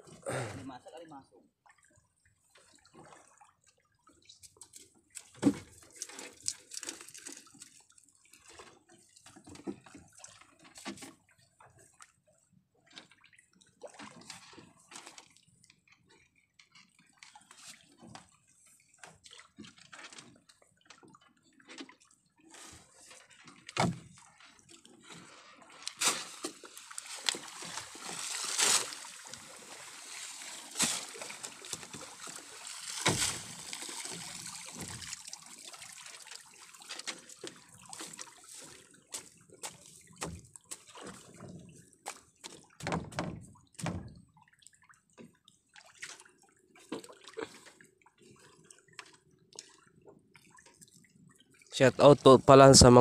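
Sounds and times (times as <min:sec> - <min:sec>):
water splashing and dripping: 0:01.6 - 0:12.1, 0:25.8 - 0:52.4.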